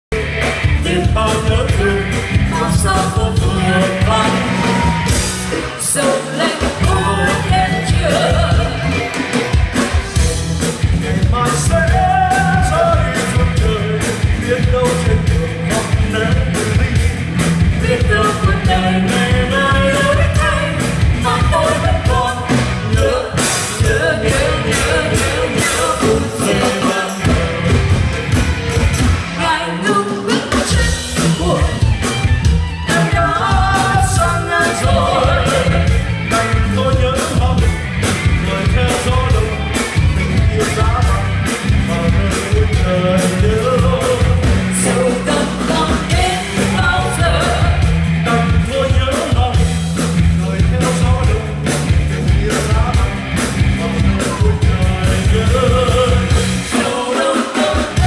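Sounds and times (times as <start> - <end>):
live band playing: 0.1 - 58.0
person singing: 0.2 - 9.6, 10.8 - 17.2, 17.8 - 28.2, 29.4 - 31.9, 32.8 - 37.8, 38.4 - 49.8, 50.4 - 58.0.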